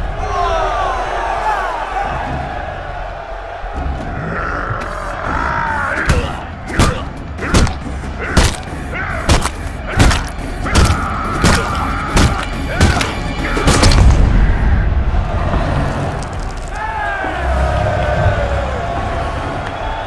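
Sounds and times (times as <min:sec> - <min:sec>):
heavy punch impacts: 0:06.1 - 0:08.7, 0:09.3 - 0:14.3.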